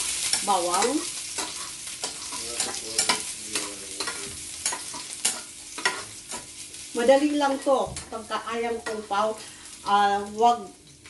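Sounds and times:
garlic sizzling in oil: 0:00.0 - 0:11.0
metal spoon scraping a pan: 0:00.1 - 0:06.6.

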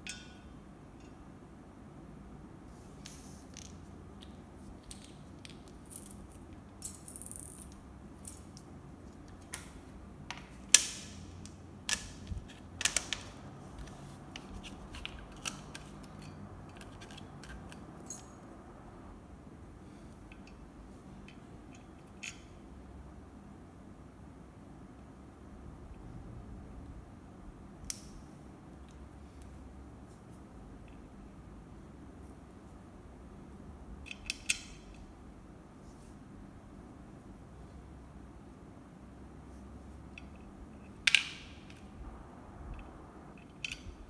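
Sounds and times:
metal stool parts clicking and knocking: 0:00.0 - 0:01.2, 0:10.3 - 0:18.3.

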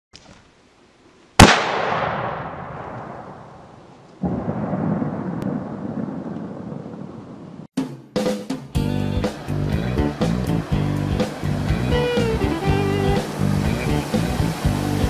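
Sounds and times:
rifle shot echoing: 0:01.4 - 0:06.4.

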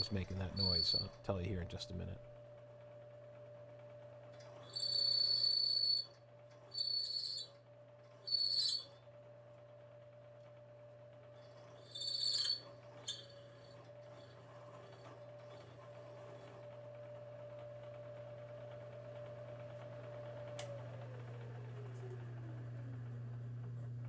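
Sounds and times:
high-pitched metallic squeal: 0:00.0 - 0:01.2, 0:04.5 - 0:09.0, 0:11.4 - 0:15.6
milling machine whine: 0:00.0 - 0:24.0.

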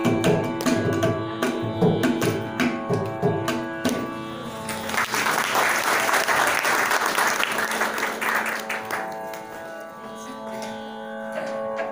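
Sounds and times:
held musical drone: 0:00.0 - 0:11.9
audience applauding: 0:04.6 - 0:09.6.

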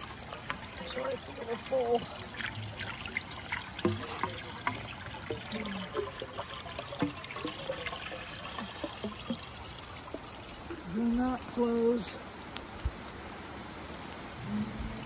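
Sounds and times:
drips and plops on water: 0:00.0 - 0:11.5
water trickling: 0:00.0 - 0:15.0.

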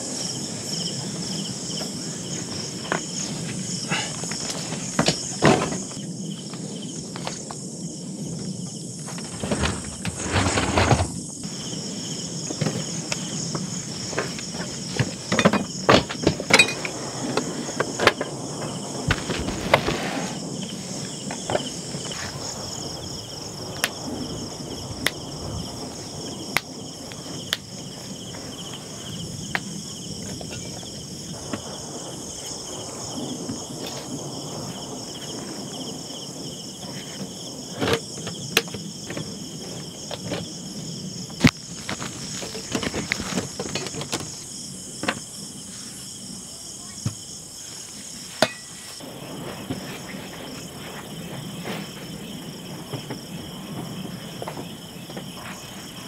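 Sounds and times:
high insect chorus: 0:00.0 - 0:56.0
sharp knocks and clatters: 0:12.5 - 0:20.0.

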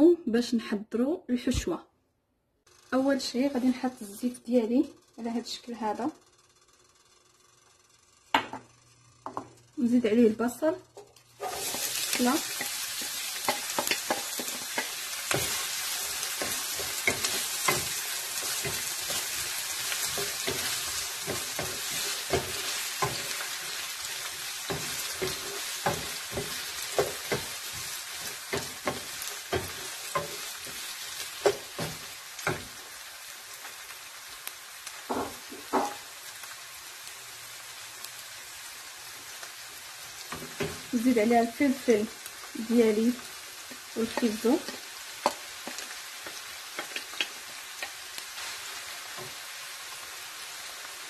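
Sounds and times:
onion sizzling in oil: 0:02.7 - 0:51.0
wooden spoon knocking pan: 0:13.4 - 0:15.6, 0:24.6 - 0:32.8, 0:35.1 - 0:36.0, 0:44.0 - 0:48.0.

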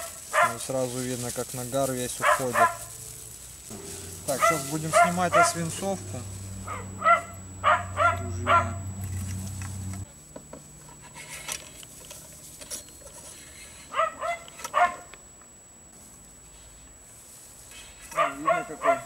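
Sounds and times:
dog barking: 0:00.0 - 0:00.7, 0:02.2 - 0:03.0, 0:04.3 - 0:05.6, 0:06.6 - 0:08.8, 0:13.9 - 0:15.1, 0:18.1 - 0:19.0
low steady hum: 0:00.0 - 0:17.9
brush scraping in gun barrel: 0:03.7 - 0:06.0, 0:10.8 - 0:13.9.

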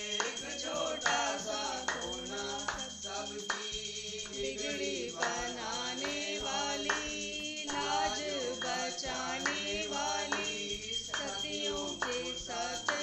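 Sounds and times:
devotional singing: 0:00.0 - 0:13.0
rhythmic handclaps: 0:00.0 - 0:13.0.

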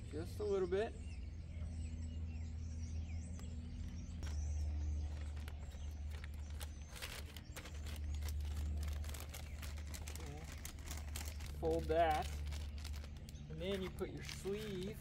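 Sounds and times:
faint bird chirps: 0:00.0 - 0:15.0
steady low hum: 0:00.0 - 0:15.0
plastic bag crinkling: 0:04.2 - 0:15.0.

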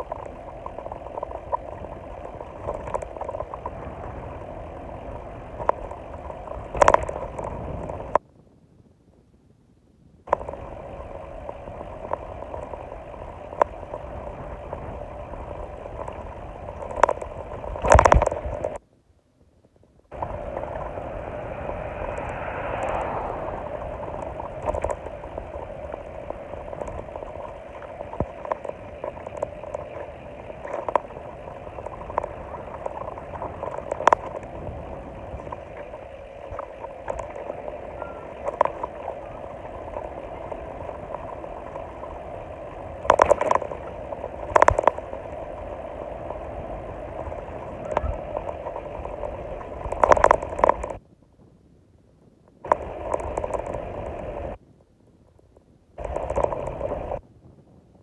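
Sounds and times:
wind and road noise: 0:00.0 - 0:58.0
loud rumble: 0:20.1 - 0:29.1.

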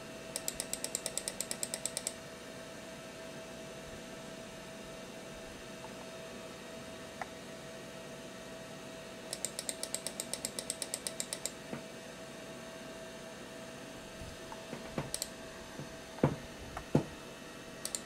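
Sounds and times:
faint hum: 0:00.0 - 0:18.0
light mouse clicks: 0:00.4 - 0:02.2, 0:09.3 - 0:11.6, 0:15.1 - 0:15.3.

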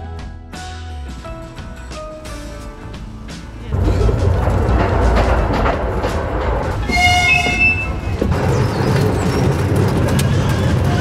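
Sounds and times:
background music: 0:00.0 - 0:11.0
miniature train running: 0:03.8 - 0:11.0
train whistle toot: 0:06.8 - 0:08.0.

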